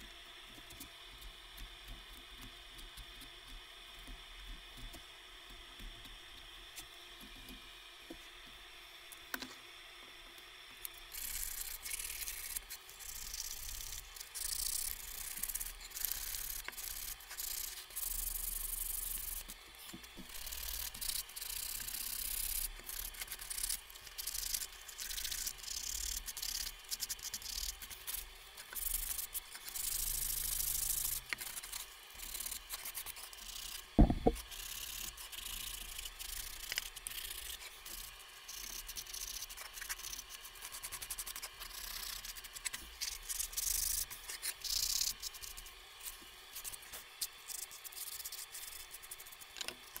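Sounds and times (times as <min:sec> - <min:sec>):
sharp knock: 0:34.0 - 0:34.4.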